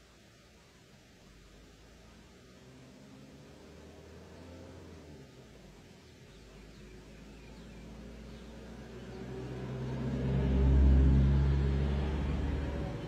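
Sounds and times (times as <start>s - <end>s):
jeep engine passing by: 2.4s - 13.0s.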